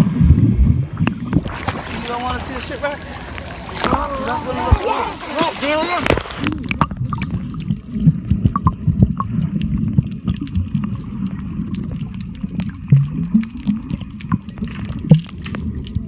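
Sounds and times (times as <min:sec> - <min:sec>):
muffled underwater rumble: 0:00.0 - 0:16.0
sharp underwater clicks: 0:03.2 - 0:16.0.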